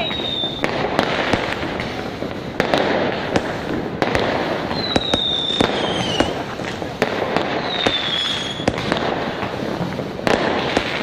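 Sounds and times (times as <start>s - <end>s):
high firework whistle: 0.0s - 0.8s, 4.2s - 6.6s, 7.6s - 8.9s
fireworks crackling and banging: 0.0s - 11.0s.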